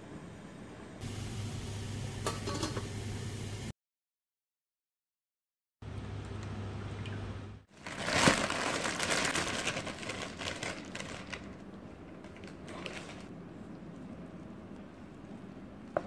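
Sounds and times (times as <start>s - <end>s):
chip bag crinkling: 7.7s - 13.3s.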